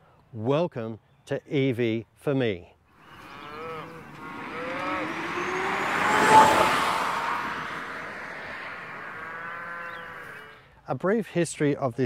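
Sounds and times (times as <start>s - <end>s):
car passing by: 3.0s - 10.6s.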